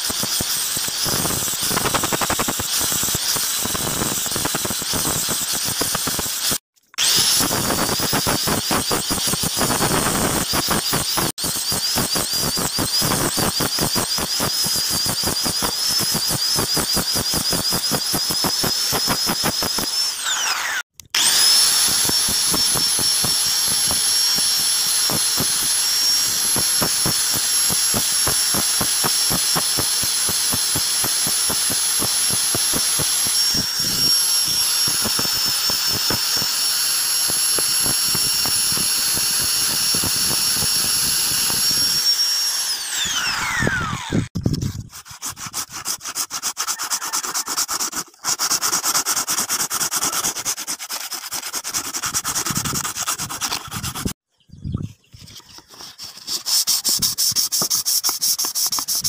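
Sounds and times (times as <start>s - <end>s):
angle grinder whining: 0.0s - 44.5s.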